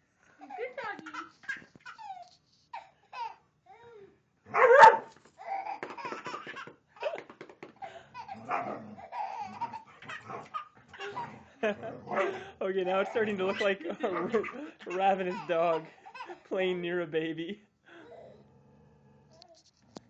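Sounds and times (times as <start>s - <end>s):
baby laughing: 0.5s - 3.4s, 5.4s - 16.6s.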